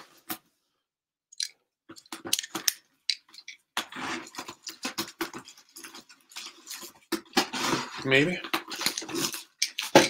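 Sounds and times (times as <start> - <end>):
shrink-wrap crinkling: 3.9 - 10.0.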